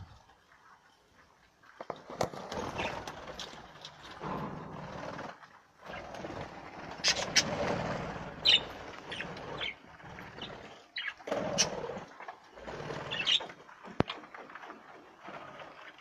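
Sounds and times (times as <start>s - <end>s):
budgerigars chattering: 7.0s - 7.7s, 8.3s - 11.8s, 13.0s - 13.5s.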